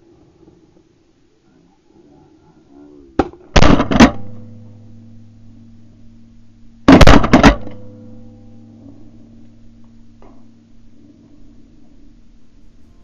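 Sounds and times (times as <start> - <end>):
shotgun blasts: 3.2 - 4.5, 6.9 - 7.8.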